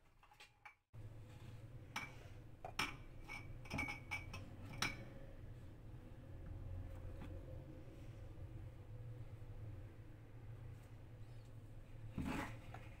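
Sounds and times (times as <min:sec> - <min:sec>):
spatula scraping metal bowl: 0:12.1 - 0:13.0.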